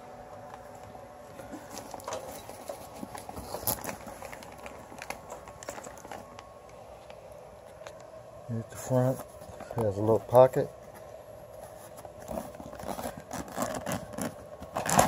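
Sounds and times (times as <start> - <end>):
cooling fan humming: 0.0 - 15.0
bag clicks and rustles: 1.4 - 6.5, 11.6 - 15.0.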